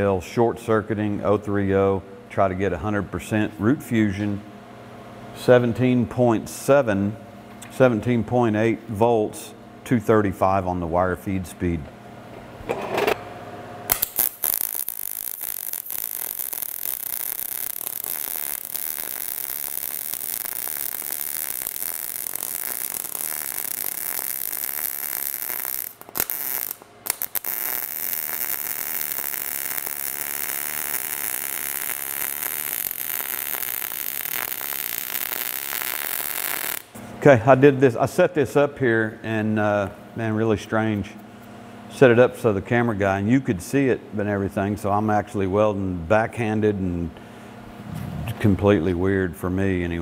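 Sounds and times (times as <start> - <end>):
welding arc crackling: 13.9 - 37.0.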